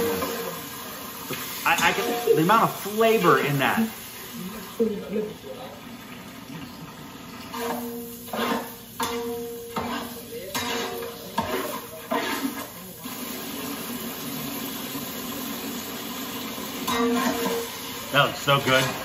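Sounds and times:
food sizzling: 0.0s - 19.0s
spoon scraping a pot: 7.5s - 12.8s, 16.9s - 17.7s.

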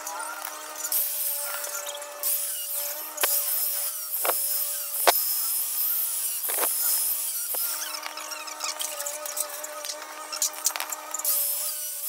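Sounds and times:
steady hum: 4.1s - 5.2s, 6.4s - 6.8s.

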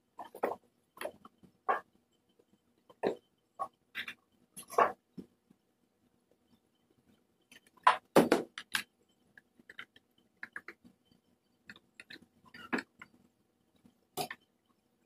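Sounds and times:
plastic parts knocking and clicking: 7.5s - 11.0s, 11.6s - 13.2s.

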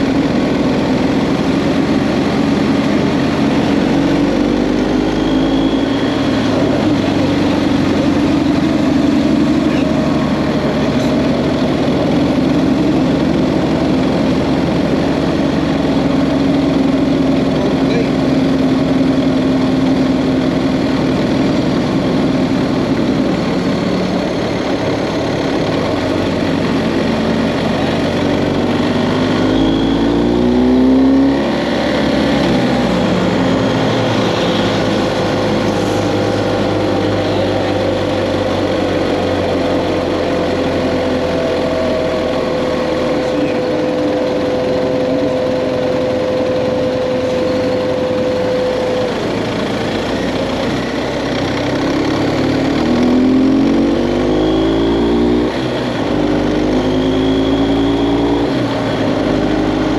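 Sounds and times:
motorcycle engine running: 0.0s - 59.9s
steady rushing noise: 31.3s - 54.0s.

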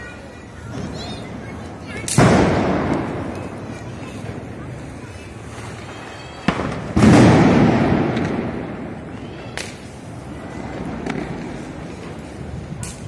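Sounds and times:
firecrackers cracking: 0.0s - 13.0s
loud echoing bang: 2.1s - 3.3s, 6.5s - 9.1s.

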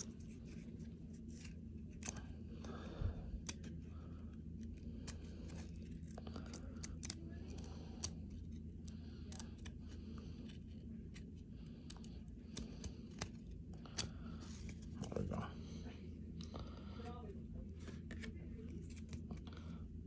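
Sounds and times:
cards peeling apart: 0.0s - 3.8s, 4.4s - 15.2s
steady low hum: 0.0s - 20.0s.

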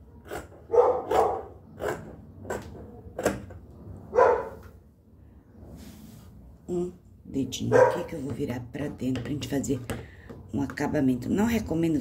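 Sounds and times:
dog barking: 0.7s - 1.6s, 4.1s - 4.6s, 7.7s - 8.1s.

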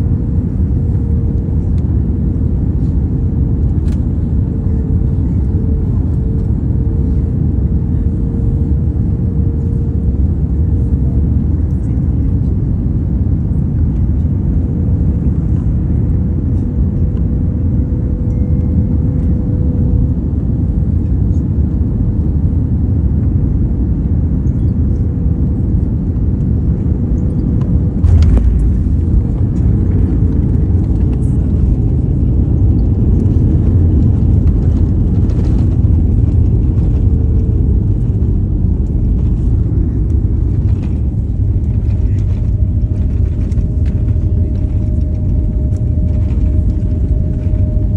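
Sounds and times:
jet engine rumble in cabin: 0.0s - 47.9s
jet rolling on runway: 18.8s - 47.9s.

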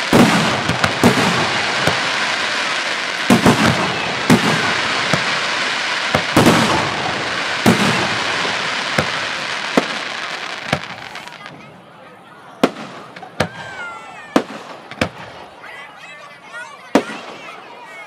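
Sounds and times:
firework shells bursting: 0.0s - 11.4s
continuous firework hiss: 0.0s - 18.0s.

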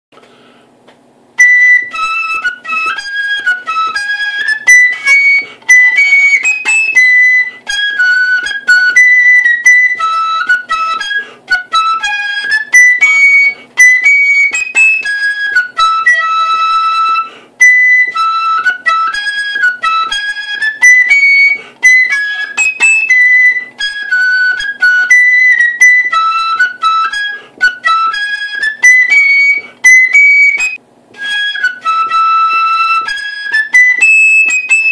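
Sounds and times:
flutist breathing: 0.2s - 0.8s, 5.4s - 5.7s, 11.1s - 11.5s, 13.6s - 13.8s, 17.2s - 17.6s, 21.5s - 21.8s, 27.2s - 27.6s, 29.6s - 29.8s
flute playing jig melody: 1.3s - 34.9s.

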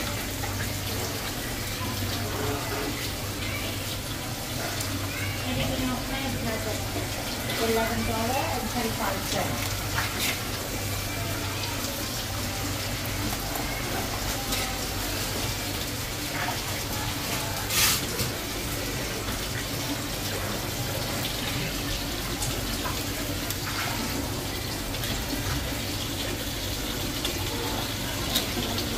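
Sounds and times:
running water rushing: 0.0s - 28.9s.

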